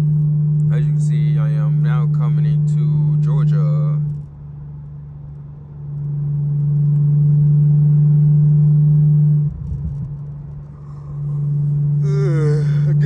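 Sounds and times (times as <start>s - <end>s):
car cabin engine drone: 0.0s - 13.0s.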